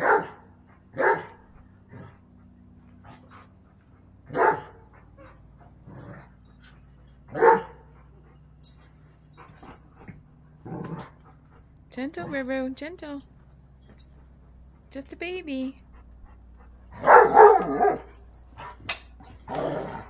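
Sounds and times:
dog barking: 0.0 - 1.4, 4.3 - 4.9, 7.3 - 7.9, 17.0 - 18.2.

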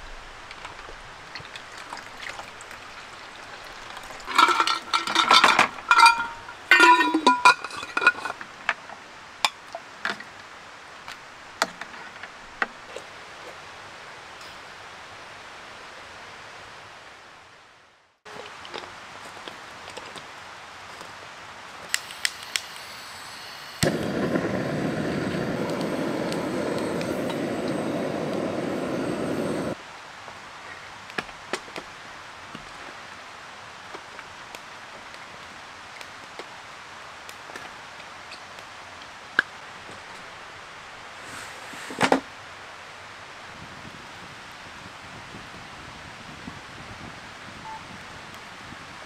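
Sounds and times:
fire popping and crackling: 0.0 - 8.3, 23.8 - 29.8
gas torch hissing: 21.9 - 29.8.

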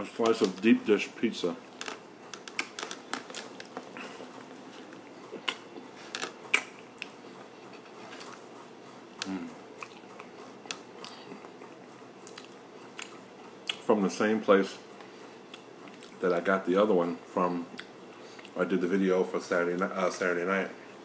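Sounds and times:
wet chewing mouth clicks: 4.8 - 7.5, 9.1 - 13.8, 15.5 - 16.2.

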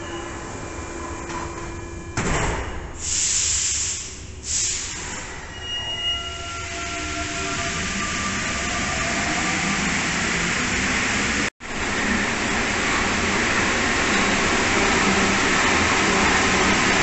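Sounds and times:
air hissing: 3.0 - 5.3.

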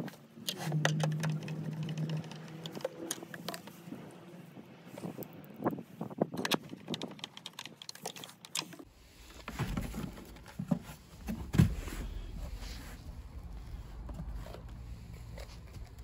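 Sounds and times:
small plastic clicks and knocks: 0.4 - 3.7, 6.4 - 8.9.

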